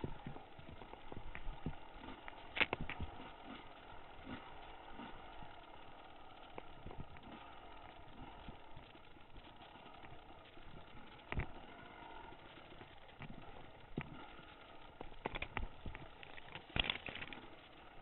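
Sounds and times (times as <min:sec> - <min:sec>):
dirt bike engine: 0:00.0 - 0:18.0
bike knocks and rattles: 0:15.0 - 0:17.6.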